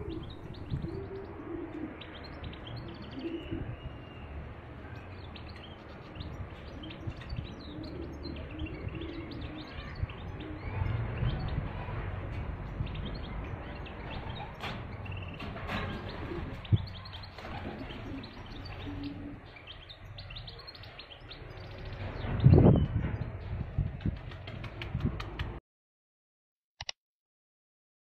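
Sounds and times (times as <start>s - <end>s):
dove cooing: 0.0s - 2.2s, 2.8s - 3.8s, 6.8s - 11.0s, 17.5s - 19.4s
small birds chirping: 0.0s - 23.6s.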